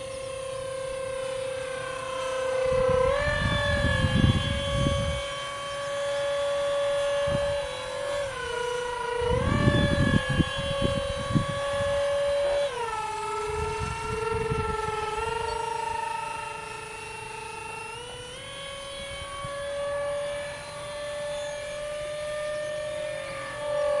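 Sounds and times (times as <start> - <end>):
electric ducted fans whining: 0.0 - 24.0
wind rumble on microphone: 2.6 - 5.6, 6.2 - 15.6, 18.6 - 20.5.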